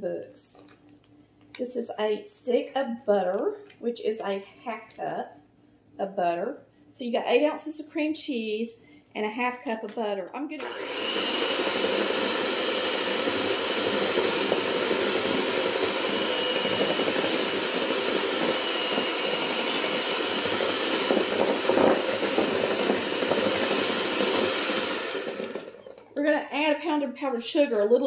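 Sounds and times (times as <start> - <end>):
electric hand mixer running: 10.6 - 26.2.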